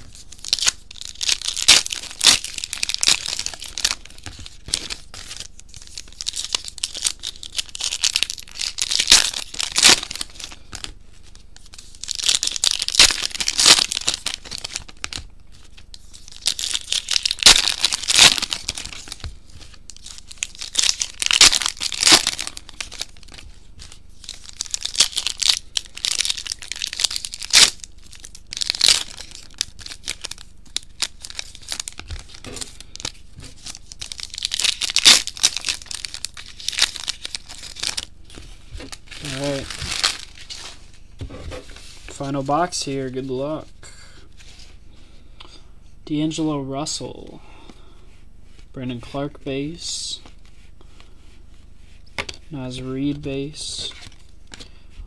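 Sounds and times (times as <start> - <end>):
card pack wrappers tearing and crinkling: 0.0 - 43.2.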